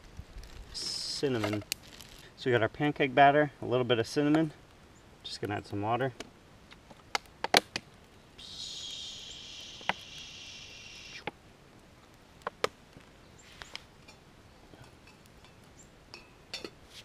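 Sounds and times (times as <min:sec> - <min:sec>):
water stream hissing into pot: 0:08.4 - 0:11.3.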